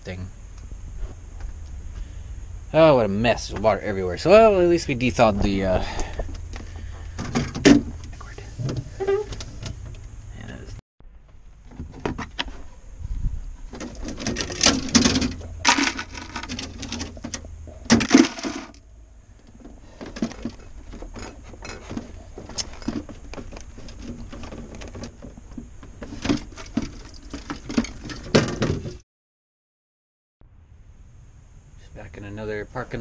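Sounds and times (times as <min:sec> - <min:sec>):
ice chunks clattering in bucket: 0:14.0 - 0:17.2, 0:17.9 - 0:18.8.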